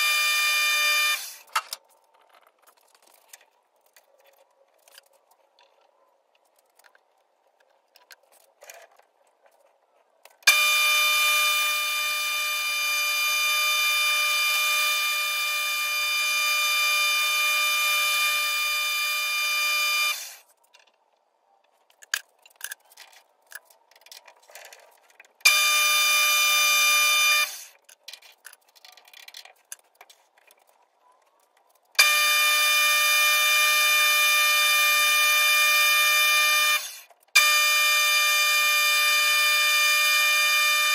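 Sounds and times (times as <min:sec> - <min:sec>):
metal lathe whining: 0:32.0 - 0:40.9.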